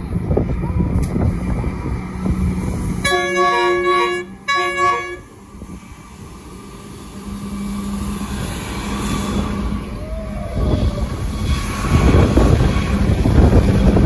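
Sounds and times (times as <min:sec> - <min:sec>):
low rumble: 0:00.0 - 0:14.0
train horn blasts: 0:03.0 - 0:05.4.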